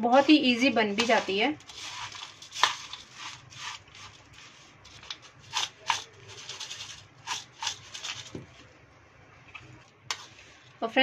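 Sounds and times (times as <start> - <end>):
dry snack mix rustling: 0.0 - 8.7.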